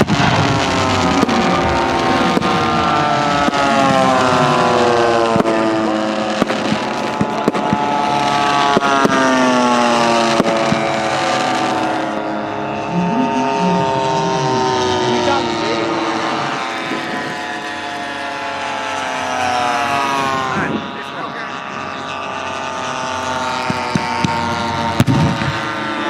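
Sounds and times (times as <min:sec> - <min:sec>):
pyrotechnic bangs: 0:00.0 - 0:13.2, 0:23.3 - 0:26.0
model plane propeller engines passing: 0:00.0 - 0:26.0.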